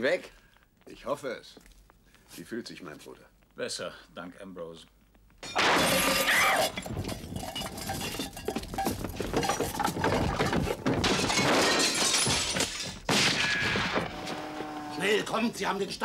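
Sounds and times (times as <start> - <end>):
window glass shattering: 5.4 - 8.5, 9.4 - 14.2
glass shards clinking: 5.4 - 13.0.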